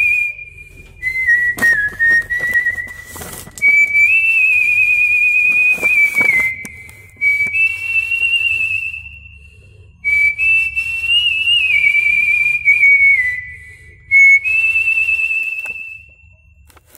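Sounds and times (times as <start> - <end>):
man whistling a melody: 0.0 - 16.4.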